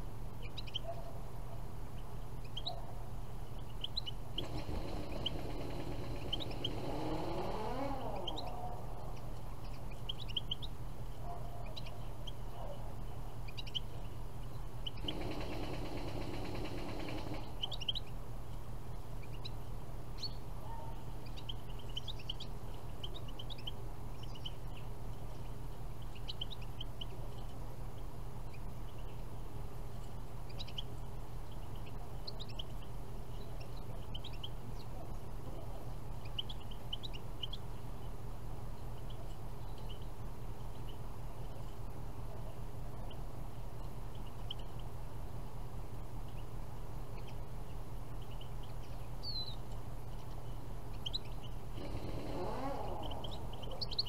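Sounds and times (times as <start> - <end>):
steady low hum: 0.0 - 54.0
goldfinches chirping: 0.4 - 1.2, 1.9 - 18.2, 18.9 - 45.0, 46.1 - 54.0.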